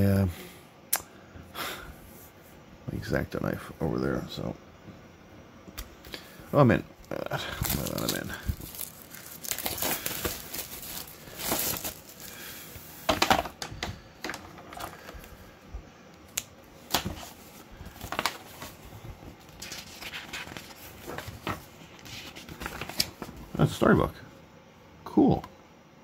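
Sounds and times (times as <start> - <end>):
plastic wrapping crinkling and tearing: 7.0 - 12.5.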